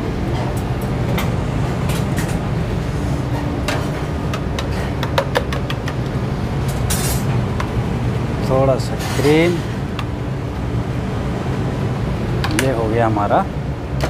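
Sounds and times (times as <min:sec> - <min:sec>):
kitchen equipment rumble: 0:00.0 - 0:10.6.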